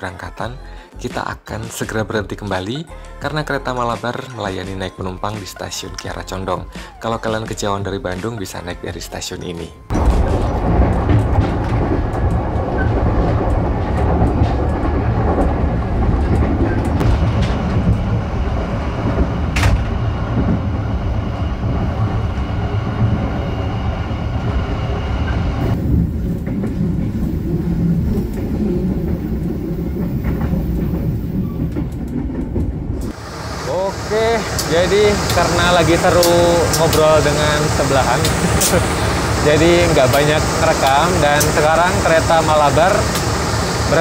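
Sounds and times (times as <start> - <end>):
train wheels rumbling on rails: 9.9 - 44.0.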